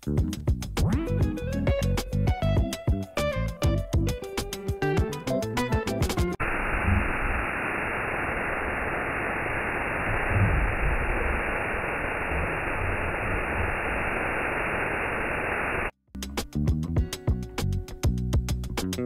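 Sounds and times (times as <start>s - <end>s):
background music: 0.0s - 6.4s
waterfall rushing: 6.4s - 15.8s.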